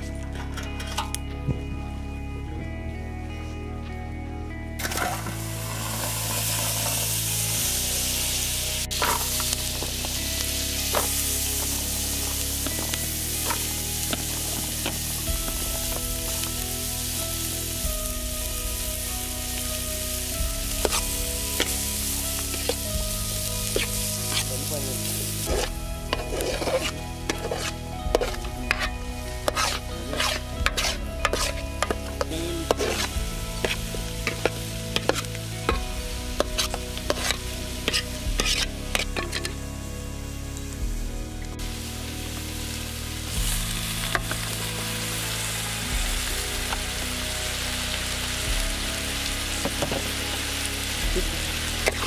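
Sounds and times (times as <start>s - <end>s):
onions sizzling in butter: 4.8s - 52.0s
metal ladle scraping pot: 25.5s - 35.8s, 36.4s - 39.6s.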